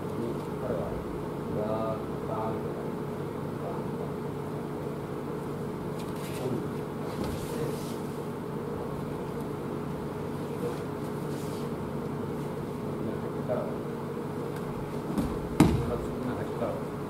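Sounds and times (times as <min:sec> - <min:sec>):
low room hum: 0:00.0 - 0:17.0
fabric rustles and feet on mats: 0:07.0 - 0:08.1.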